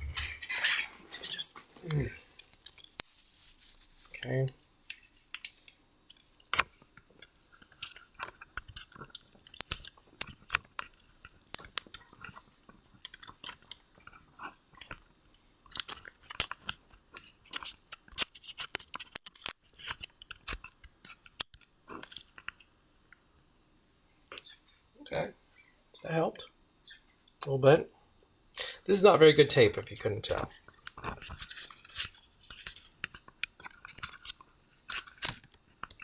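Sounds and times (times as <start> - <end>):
adhesive tape crackling and snapping: 0.2 - 22.6, 30.6 - 36.0.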